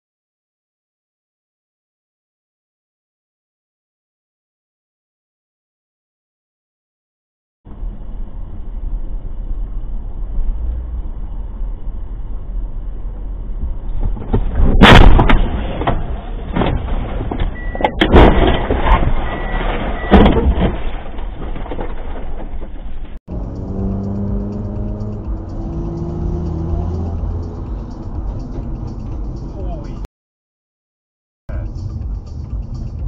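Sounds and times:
car cabin road noise: 7.7s - 30.1s
car crash: 13.9s - 23.2s
heavy bangs: 14.3s - 22.8s.

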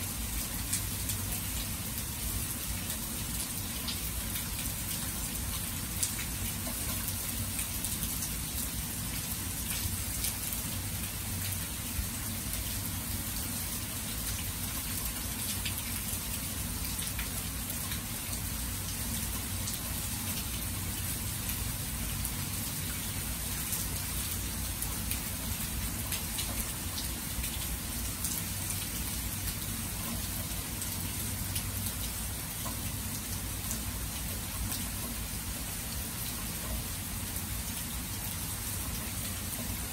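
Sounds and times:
steady rain hiss: 0.0s - 39.9s.

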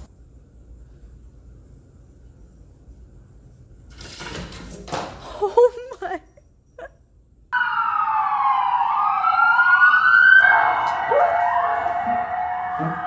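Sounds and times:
emergency vehicle sirens wailing: 7.6s - 13.0s
dog howling: 10.4s - 13.0s.

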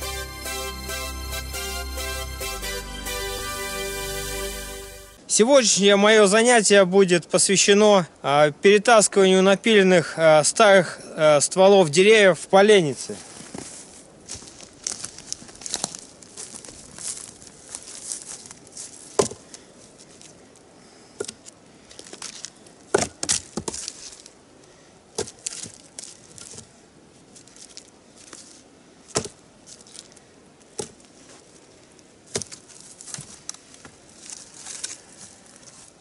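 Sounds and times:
footsteps crunching on snow: 13.0s - 20.4s, 23.4s - 24.4s, 25.2s - 28.6s, 32.3s - 36.0s
wooden logs knocking: 19.2s - 19.4s, 22.9s - 23.9s, 25.2s - 25.8s, 29.1s - 29.4s.

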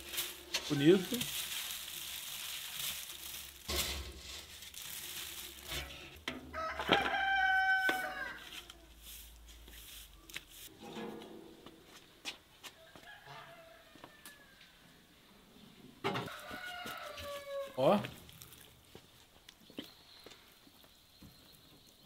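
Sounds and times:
soft rustle: 0.0s - 6.2s, 7.8s - 12.8s
rooster crowing: 6.5s - 8.8s, 12.7s - 15.0s, 16.2s - 17.9s.

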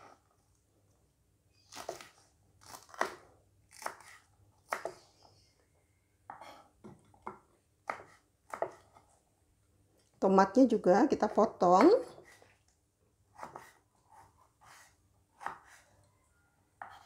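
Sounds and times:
knife cutting on wooden board: 1.7s - 5.0s, 7.8s - 9.1s, 13.3s - 15.9s, 16.8s - 17.0s.

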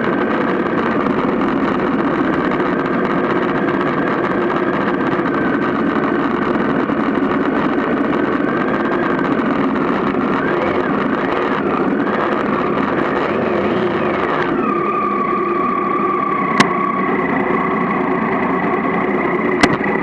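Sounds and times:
motorcycle engine running: 0.0s - 20.0s
sharp click: 19.6s - 19.9s.

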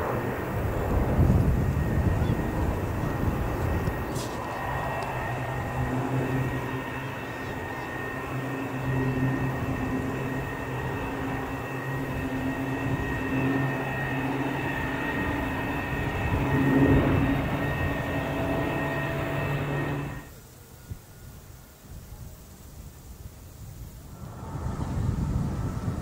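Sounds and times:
jet airliners flying past: 0.0s - 26.0s.

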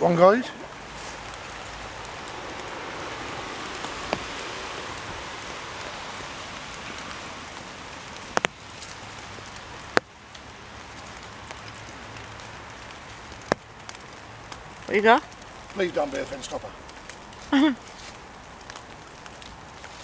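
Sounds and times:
water hissing: 0.8s - 8.1s.

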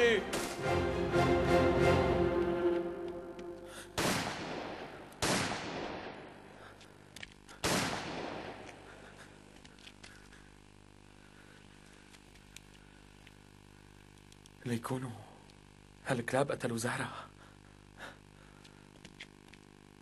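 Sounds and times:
music cue: 0.0s - 4.0s
echoing gunshots: 0.3s - 0.6s, 3.9s - 6.6s, 7.6s - 9.0s.

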